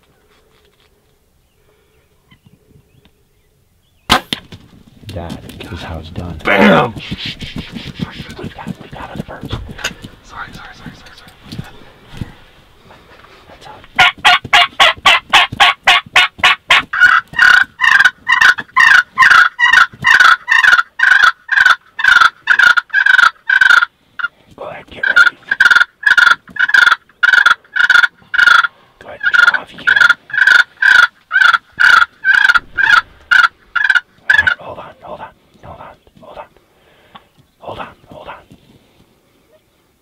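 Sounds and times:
turkey calling: 0:13.1 - 0:24.4, 0:25.0 - 0:34.8.

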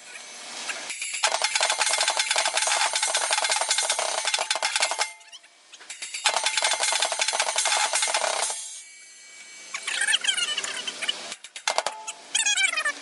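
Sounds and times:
metal drum kit played fast: 0:01.2 - 0:05.2.

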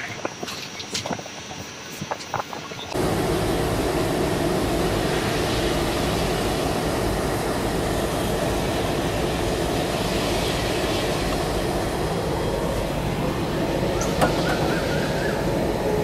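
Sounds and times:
train noise: 0:00.0 - 0:16.0
diesel locomotive engine rumble: 0:02.9 - 0:16.0.

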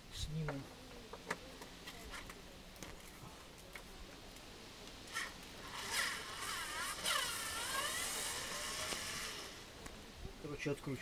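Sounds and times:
cordless screwdriver whining: 0:05.1 - 0:09.6.

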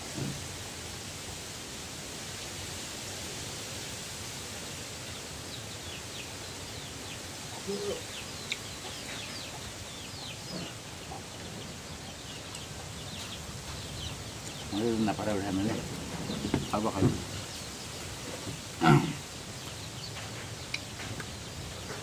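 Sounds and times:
steady hiss: 0:00.0 - 0:22.0
chicks peeping: 0:05.1 - 0:22.0.

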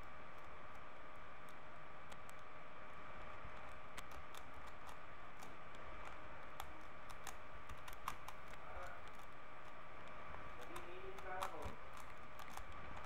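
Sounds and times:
puzzle cube layers clicking: 0:03.6 - 0:13.0.

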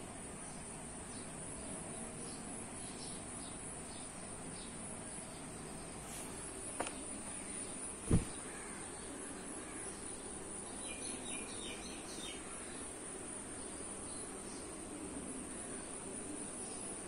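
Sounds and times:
insect drone: 0:00.0 - 0:17.0
dull thud: 0:08.0 - 0:08.4.

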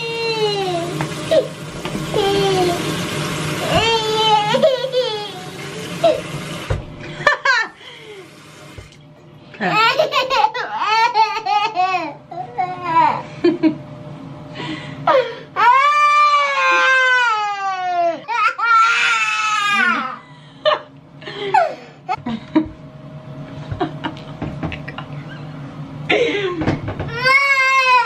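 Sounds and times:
toddler crying: 0:02.1 - 0:02.8, 0:03.6 - 0:05.6, 0:15.6 - 0:20.2, 0:27.1 - 0:28.0
woman laughing: 0:07.0 - 0:07.8, 0:09.6 - 0:10.7, 0:13.2 - 0:13.8, 0:19.7 - 0:22.8, 0:23.6 - 0:25.5, 0:26.1 - 0:26.7.

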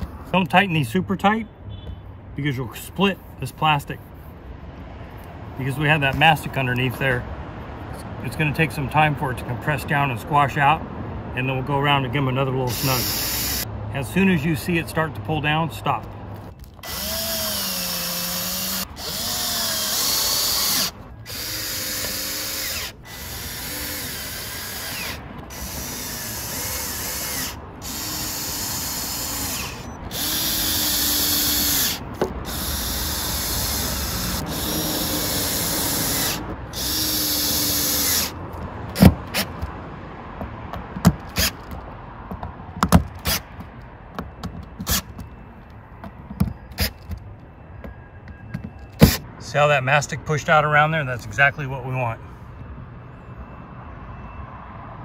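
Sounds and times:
drill driving screws: 0:12.7 - 0:13.6, 0:16.8 - 0:38.4
sharp clicks and knocks: 0:40.4 - 0:49.2.

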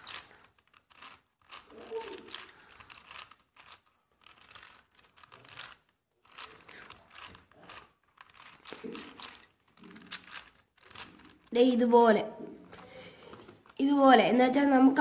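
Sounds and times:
puzzle cube plastic clicks: 0:00.0 - 0:11.8.

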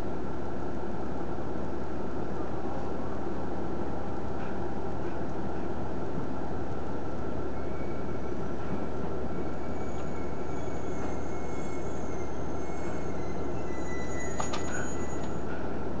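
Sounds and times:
railcar engine and wheels rumbling: 0:00.0 - 0:16.0
faint high squeals: 0:07.3 - 0:15.9.

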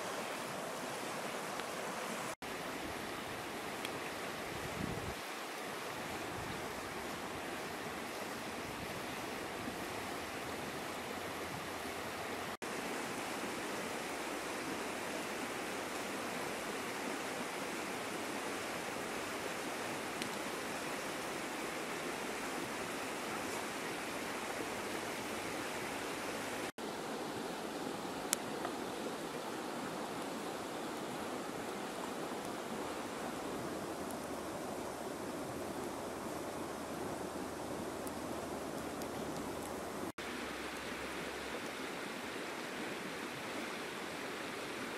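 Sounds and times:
river water over rapids: 0:00.0 - 0:44.9.

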